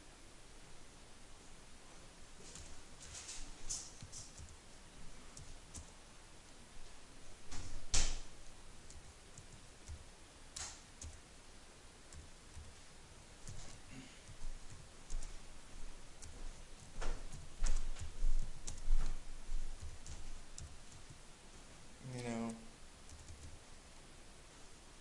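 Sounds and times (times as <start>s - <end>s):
keyboard keys clicking: 3.4s - 4.6s, 5.4s - 5.9s, 8.8s - 11.2s, 12.1s - 12.8s, 13.4s - 15.4s, 16.2s - 21.2s, 22.2s - 23.6s.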